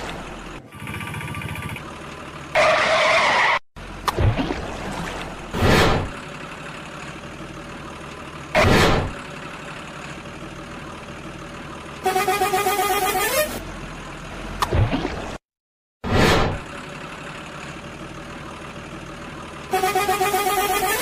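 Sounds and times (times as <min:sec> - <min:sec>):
engine-like hum: 0:00.0 - 0:15.4, 0:16.1 - 0:21.0
horn with bending pitch: 0:12.0 - 0:13.6, 0:19.7 - 0:21.0.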